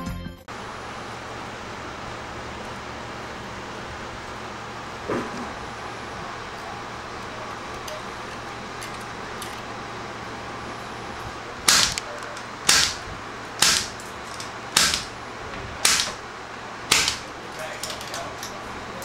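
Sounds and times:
punch-down tool snapping: 0:11.7 - 0:13.0, 0:13.6 - 0:15.1, 0:15.8 - 0:16.2, 0:16.9 - 0:17.3.

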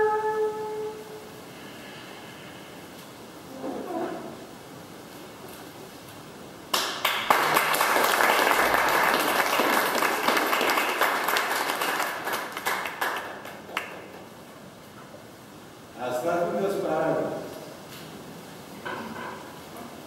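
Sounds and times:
audience applauding: 0:06.7 - 0:14.3.

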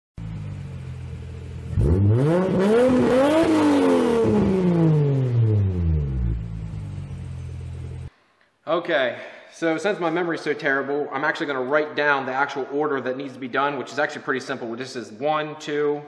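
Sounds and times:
car engine idling and revving: 0:00.2 - 0:08.1.

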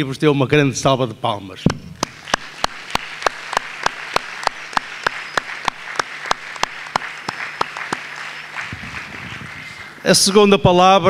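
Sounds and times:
loud close hand claps: 0:01.7 - 0:10.0
audience applauding: 0:02.0 - 0:10.2.

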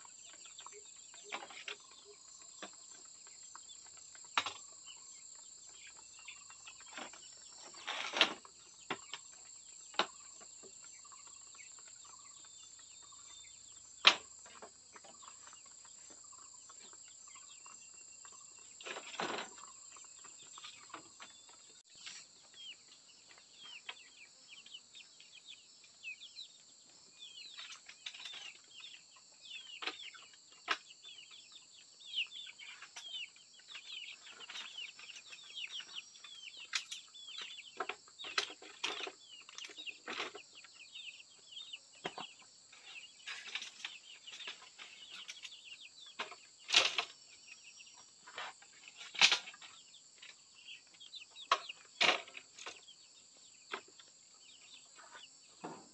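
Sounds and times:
bird chirps: 0:00.0 - 0:55.9.

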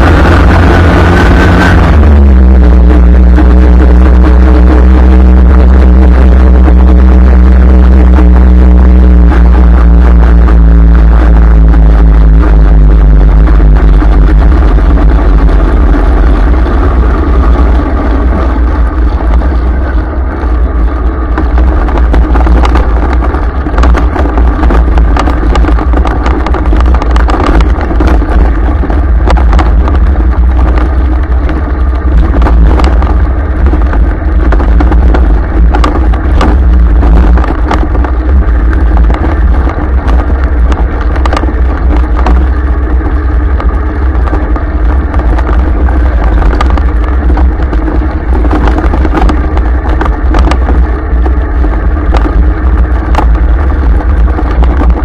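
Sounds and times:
heavy low rumble: 0:00.0 - 0:55.0
vehicle engine drone: 0:00.0 - 0:55.0
knocks and rattles: 0:21.2 - 0:55.0.

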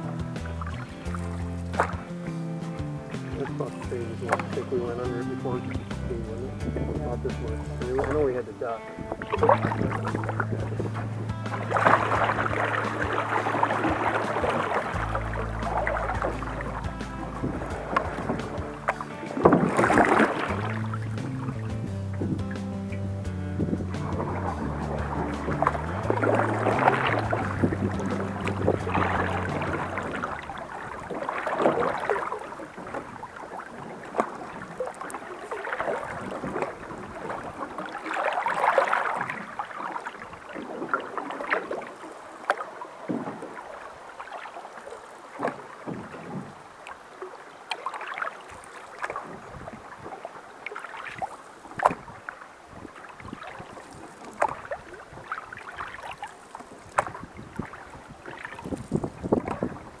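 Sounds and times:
paddle splashing in water: 0:00.0 - 1:00.0
water dripping: 0:08.8 - 0:45.9.

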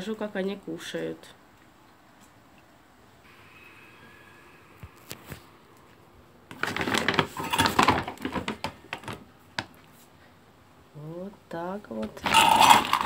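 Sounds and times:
dry kibble rattling in metal bowl: 0:06.5 - 0:09.1, 0:12.2 - 0:13.0
bag rustling: 0:06.5 - 0:09.2.

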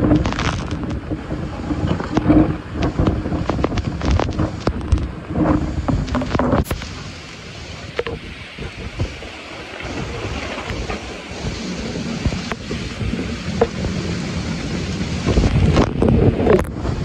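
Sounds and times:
violent wind buffeting microphone: 0:00.0 - 0:17.0.

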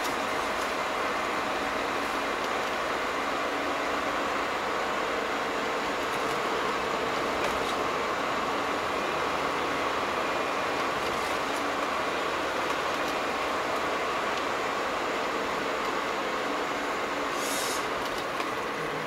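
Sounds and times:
tyre and road noise: 0:05.2 - 0:19.0.

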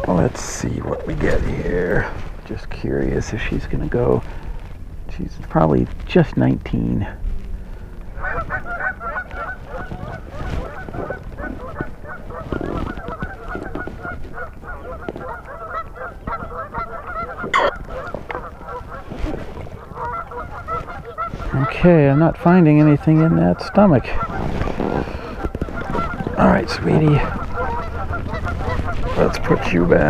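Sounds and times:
wind rumble on microphone: 0:00.0 - 0:30.0
geese honking: 0:07.7 - 0:30.0.

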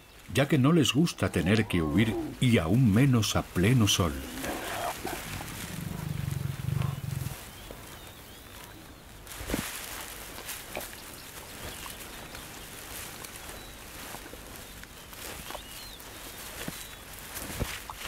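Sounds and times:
rustles and clicks in dry grass: 0:00.0 - 0:18.0
steady hiss: 0:00.3 - 0:08.0.

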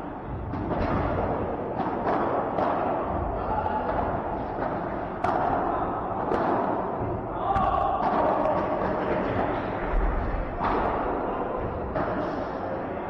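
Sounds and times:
murmur of hall: 0:00.0 - 0:13.0
paddle striking ball: 0:00.4 - 0:03.3, 0:03.9 - 0:09.5.

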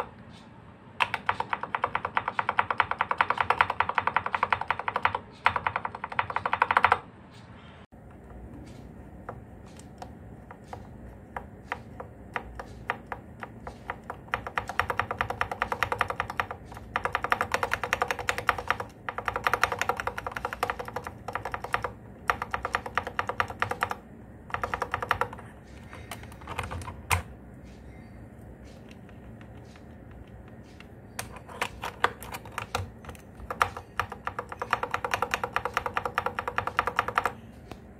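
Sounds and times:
mechanical keyboard clicking: 0:01.0 - 0:07.0, 0:09.7 - 0:27.3, 0:28.9 - 0:37.4.

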